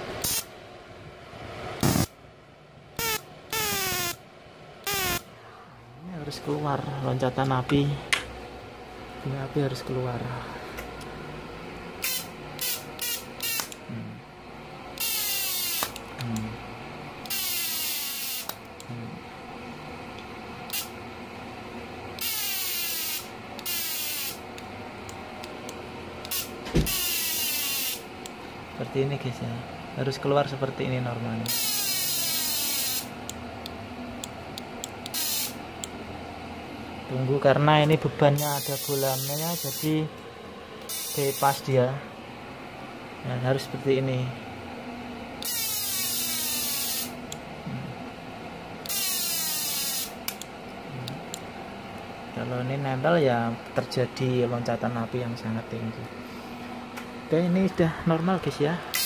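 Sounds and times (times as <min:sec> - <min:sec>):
welder arc starter buzzing: 0:00.0 - 0:00.6, 0:01.6 - 0:02.2, 0:02.9 - 0:05.3, 0:10.8 - 0:52.5, 0:58.7 - 0:59.0
welding arc spark hissing: 0:00.2 - 0:00.5, 0:01.8 - 0:02.1, 0:04.9 - 0:05.2, 0:15.0 - 0:16.0, 0:17.3 - 0:18.6, 0:22.2 - 0:24.4, 0:26.3 - 0:28.1, 0:31.5 - 0:33.2, 0:35.1 - 0:35.6, 0:38.4 - 0:40.0, 0:40.9 - 0:41.6, 0:45.4 - 0:47.2, 0:48.9 - 0:50.2
thump: 0:26.7 - 0:27.0.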